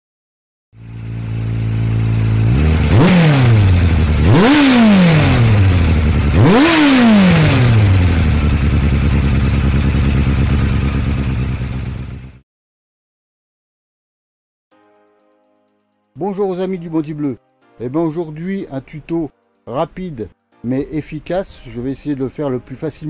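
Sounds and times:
motorcycle engine idling and revving: 0.8 - 12.4.

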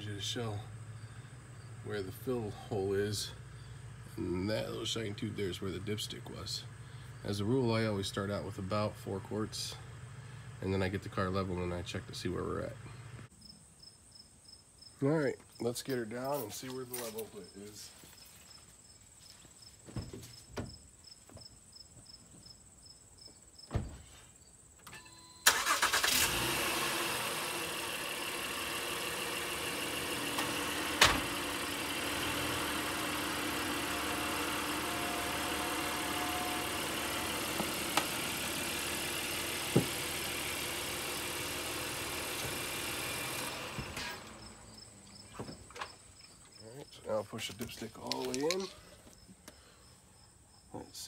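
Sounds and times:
crickets chirping: 0.6 - 1.9, 3.3 - 4.0, 13.3 - 26.0, 44.2 - 51.0
car engine starting and idling: 24.8 - 46.1.

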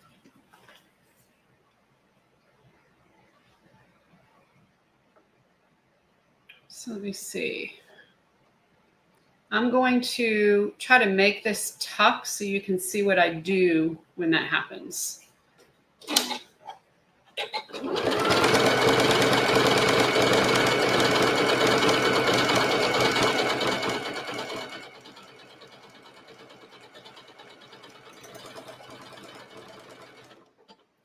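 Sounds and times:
sewing machine stitching: 16.0 - 16.4, 17.4 - 31.0.

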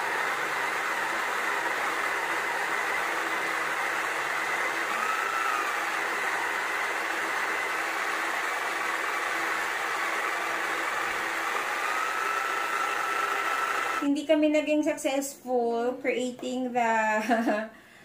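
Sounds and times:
small electric motor whirring: 0.0 - 14.0.

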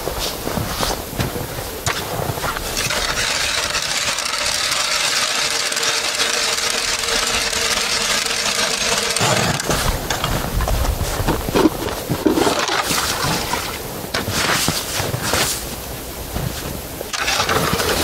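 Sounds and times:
ice auger grinding: 1.9 - 15.6, 17.1 - 18.0.

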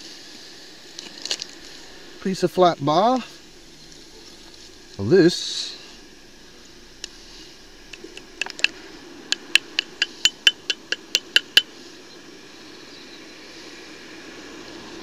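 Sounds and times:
metal objects tapping together: 7.9 - 11.7.

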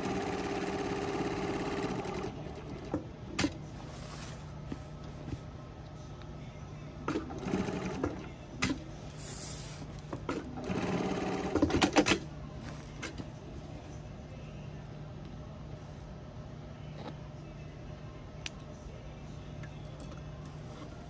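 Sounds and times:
sewing machine stitching: 10.6 - 12.0
steady low hum: 12.1 - 21.0.

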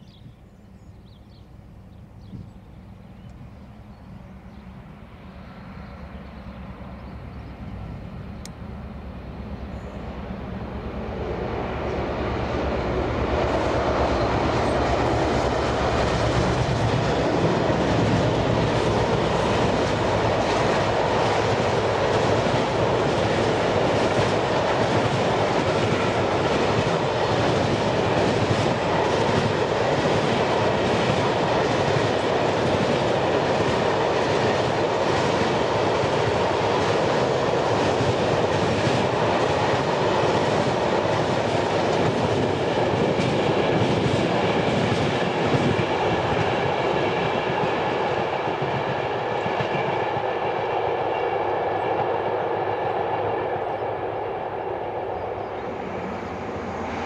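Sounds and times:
train wheels clattering over rails: 13.3 - 51.3.

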